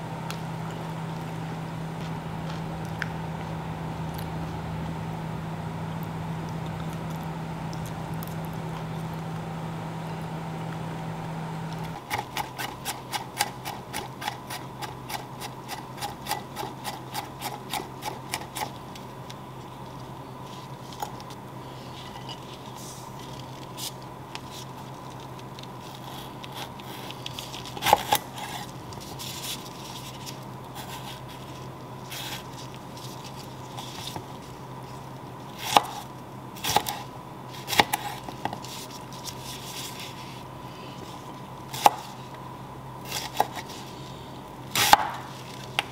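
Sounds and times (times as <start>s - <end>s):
knife chopping on wooden board: 44.8s - 45.3s.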